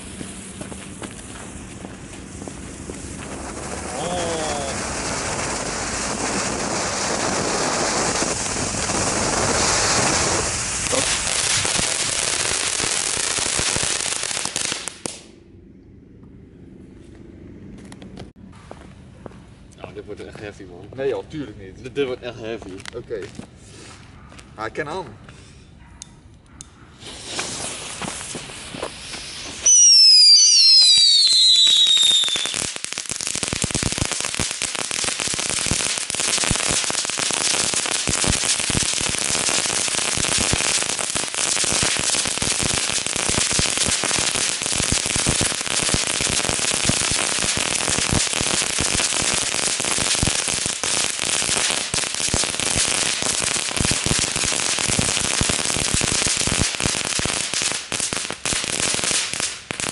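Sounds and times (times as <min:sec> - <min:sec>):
firework hiss: 0:00.0 - 0:15.3, 0:27.0 - 0:59.9
firework crackling: 0:00.0 - 0:15.4, 0:27.0 - 0:59.9
firework whistles falling in pitch: 0:01.8 - 0:06.6, 0:27.0 - 0:32.8.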